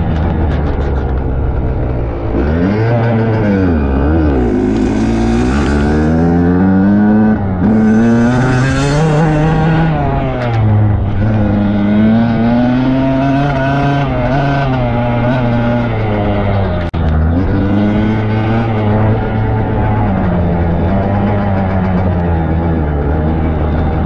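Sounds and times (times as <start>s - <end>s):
dirt bike engine revving: 2.1s - 24.0s.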